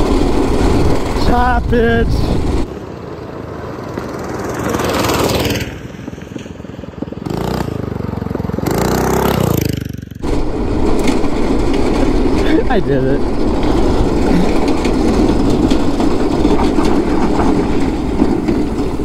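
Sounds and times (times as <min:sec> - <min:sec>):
go-kart engine running flat out: 0:00.0 - 0:19.0
small engines racing past: 0:02.5 - 0:15.4.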